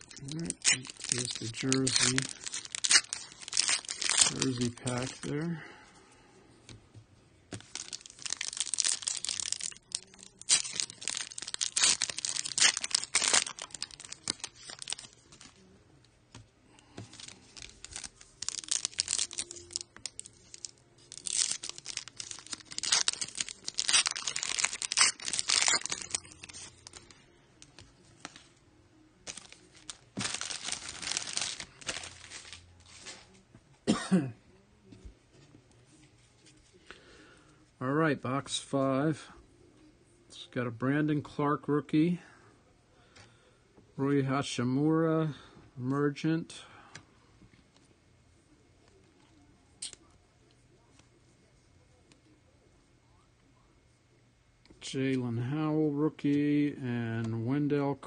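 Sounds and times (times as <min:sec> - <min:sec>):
foil wrapper tearing and crinkling: 0:00.0 - 0:05.4, 0:07.5 - 0:15.5, 0:16.8 - 0:28.4, 0:29.2 - 0:33.2
cards being handled: 0:00.0 - 0:05.5, 0:07.5 - 0:15.6, 0:16.3 - 0:28.5, 0:29.2 - 0:33.4.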